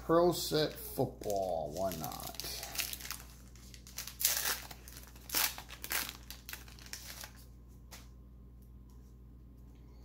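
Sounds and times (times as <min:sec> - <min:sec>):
wrapper crinkling and tearing: 0:00.6 - 0:07.5.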